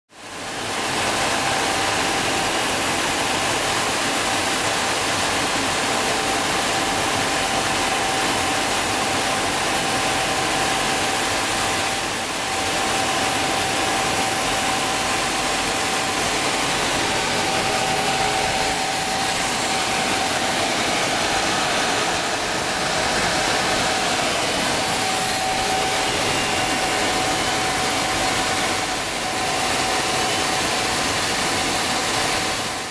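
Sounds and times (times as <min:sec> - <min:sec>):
high whine: 0:00.4 - 0:32.9
jet engine and rushing air: 0:10.6 - 0:32.9.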